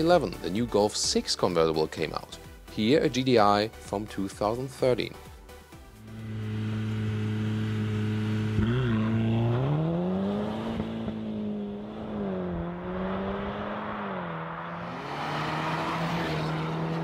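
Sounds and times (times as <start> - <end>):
car engine revving: 6.0 - 17.0.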